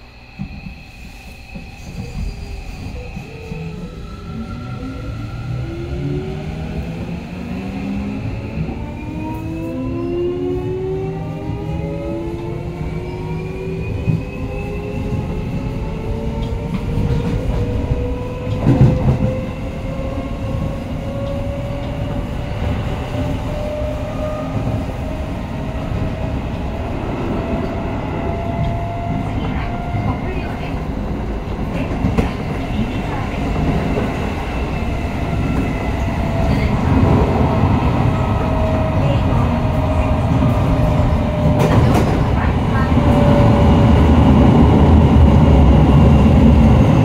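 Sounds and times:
wheels rumbling on rails: 0.2s - 47.0s.

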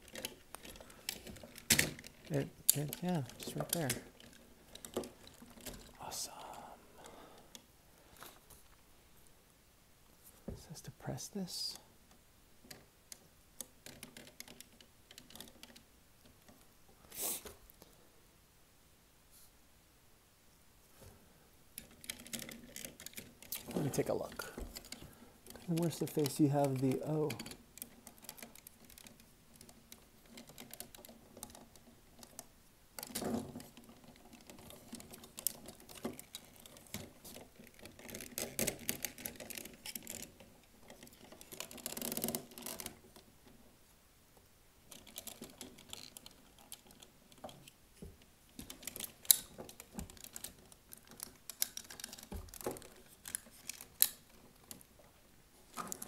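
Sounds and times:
plastic toy parts clicking: 0.0s - 6.0s, 12.7s - 16.4s, 21.8s - 43.3s, 44.9s - 47.8s, 48.5s - 54.9s.

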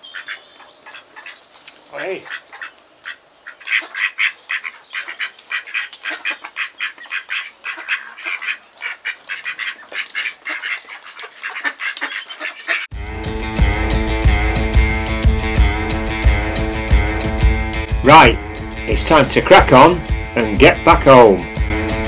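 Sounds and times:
ducks quacking: 0.0s - 12.9s
rock music: 12.9s - 22.0s.

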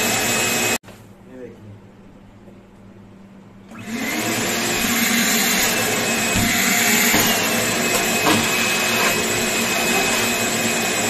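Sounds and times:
shop vacuum running: 0.0s - 0.8s, 3.7s - 11.0s.

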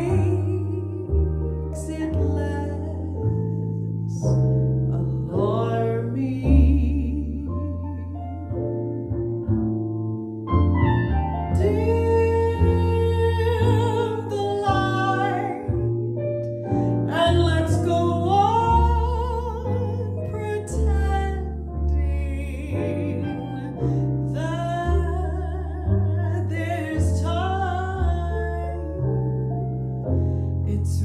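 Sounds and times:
double bass: 0.0s - 31.0s
piano: 0.0s - 31.0s
woman singing with vibrato: 11.6s - 15.8s.

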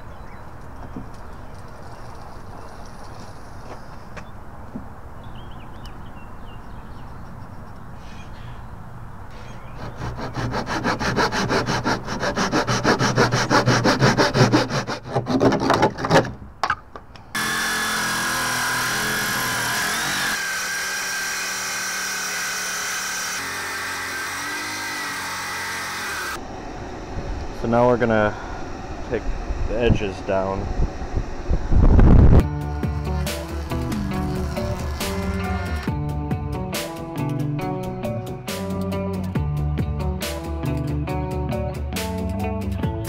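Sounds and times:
hand saw cutting cardboard tube: 9.8s - 16.3s, 17.4s - 26.4s, 32.8s - 35.9s
loud steady whining sound: 17.4s - 36.0s.

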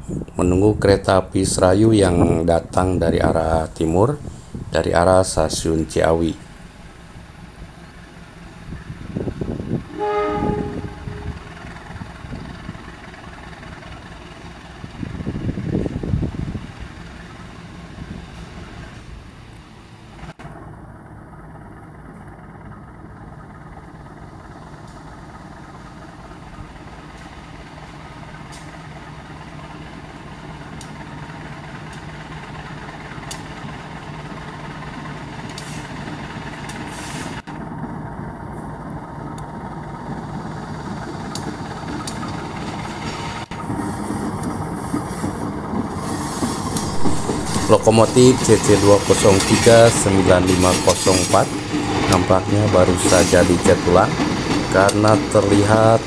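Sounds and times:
diesel locomotive engine running: 0.0s - 56.0s
wheels clicking on rails: 21.4s - 56.0s.

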